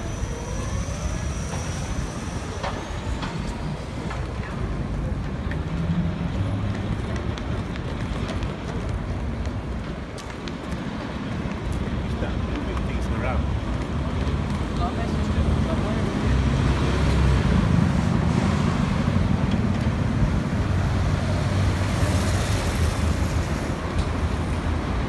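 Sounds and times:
road traffic rumble: 0.0 - 25.0
small clicks on pavement: 2.6 - 15.1, 23.8 - 24.7
footsteps on pavement: 2.6 - 16.0.

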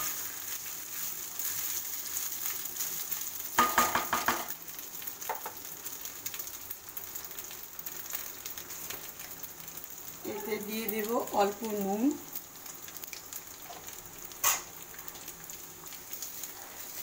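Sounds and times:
rice sizzling in oil: 0.0 - 17.0
spatula knocking and scraping pan: 3.6 - 4.5.

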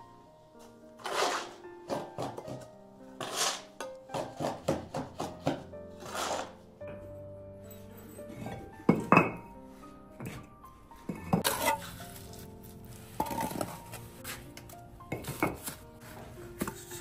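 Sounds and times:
soft background music: 0.0 - 17.0
trowel scraping mortar: 1.0 - 1.6, 3.2 - 3.8, 6.0 - 6.6.

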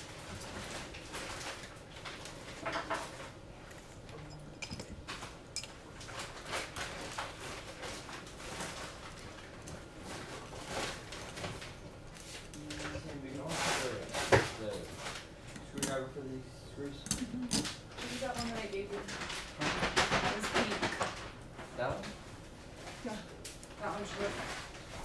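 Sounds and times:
hands handling wires clicking: 15.5 - 16.0.

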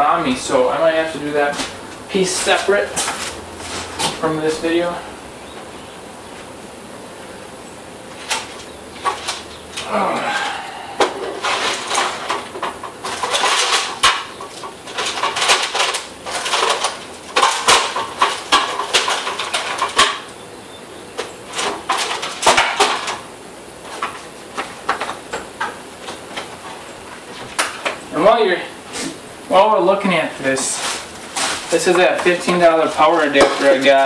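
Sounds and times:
tools clattering and rattling: 1.4 - 4.3, 8.1 - 20.3, 21.2 - 28.0, 30.4 - 34.0.

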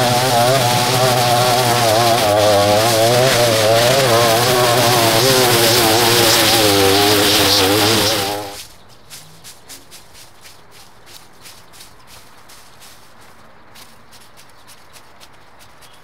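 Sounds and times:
small gasoline engine running: 0.0 - 8.7
light footsteps: 0.0 - 16.0.

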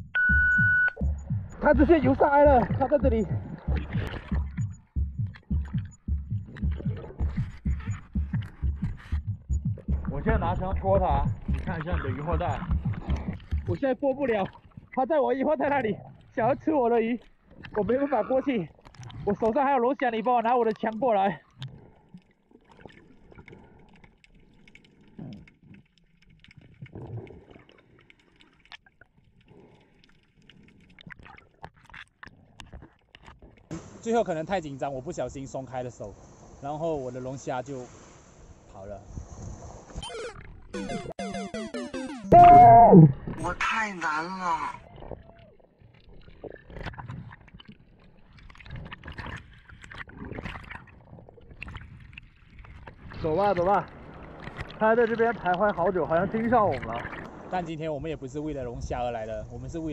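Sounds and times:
muffled low gurgles: 0.0 - 19.6, 42.3 - 43.7, 44.6 - 59.9
underwater crackle of small clicks: 11.3 - 33.7, 44.9 - 57.4.

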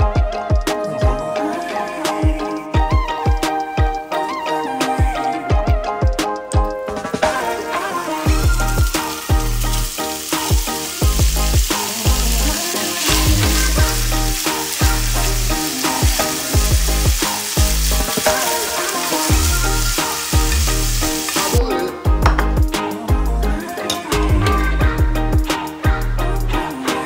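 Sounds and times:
background music with bass line: 0.0 - 27.0
meat sizzling in oil: 7.3 - 21.6.

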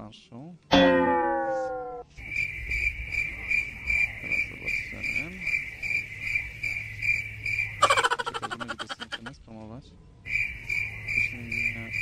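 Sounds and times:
cricket chirping: 2.1 - 9.3, 10.2 - 12.0.

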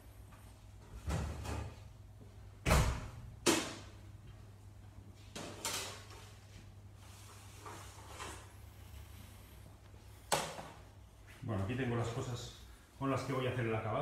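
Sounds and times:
steady low hum: 6.0 - 14.0.

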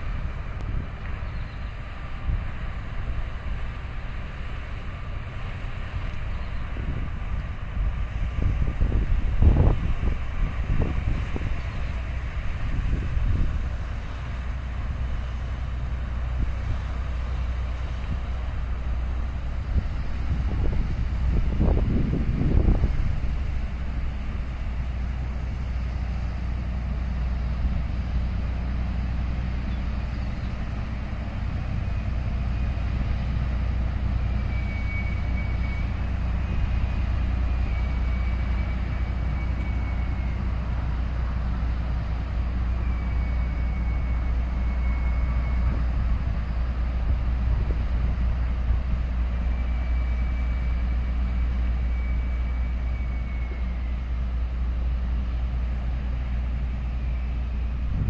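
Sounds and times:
ship engine rumble: 0.0 - 58.0.

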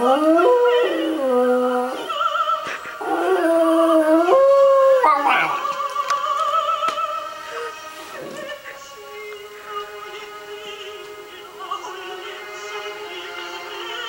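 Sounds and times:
dog howling: 0.0 - 5.9
opera singing: 0.0 - 14.0.

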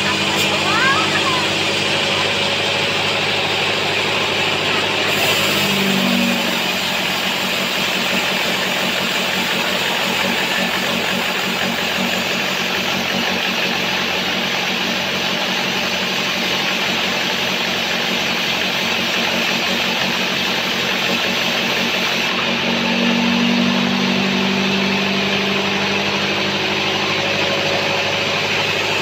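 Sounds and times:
low hum: 0.0 - 7.5, 22.2 - 29.0
band saw cutting log: 0.0 - 29.0.

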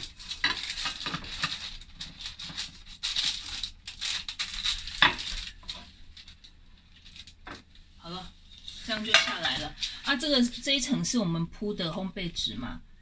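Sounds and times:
paper rustling: 0.0 - 7.6
metal cake pan handled: 8.8 - 9.8.

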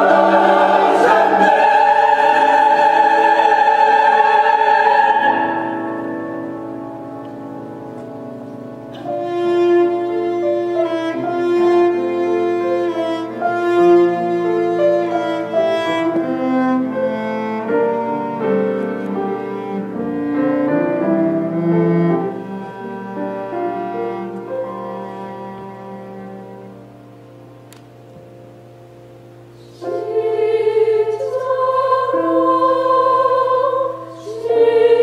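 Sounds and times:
bowed cello melody: 0.0 - 27.6.

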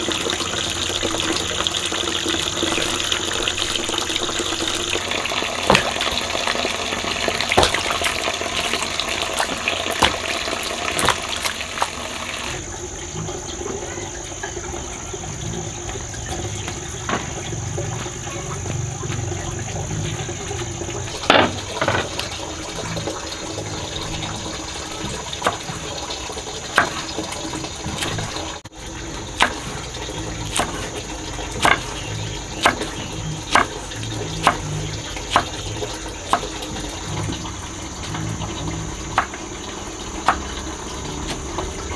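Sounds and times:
water pouring: 0.0 - 41.9
sharp knocks: 5.6 - 6.2, 7.5 - 8.1, 9.4 - 10.4.

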